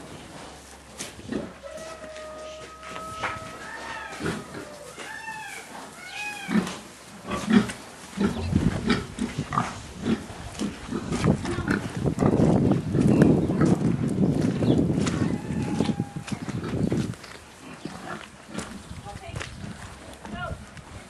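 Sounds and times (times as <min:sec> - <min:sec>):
trotters scuffling on wet concrete: 0:00.0 - 0:21.0
pigs squealing: 0:02.7 - 0:06.8.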